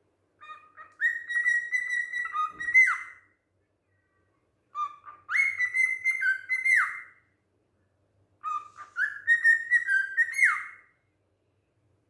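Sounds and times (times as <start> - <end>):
cockatiel whistling: 0.4 - 3.3, 4.7 - 7.2, 8.4 - 10.9.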